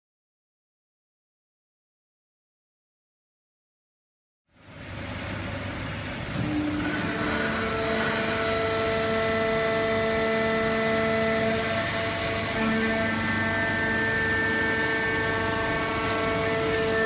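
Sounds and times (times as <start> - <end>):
baling press machine hum: 4.5 - 17.0
machine whining tones: 6.3 - 17.0.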